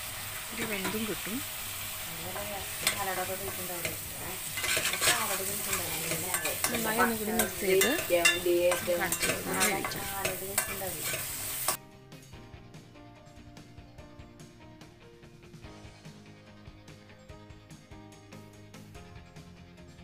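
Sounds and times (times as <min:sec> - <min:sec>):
food sizzling in pan: 0:00.0 - 0:11.8
spatula scraping metal pan: 0:00.6 - 0:11.8.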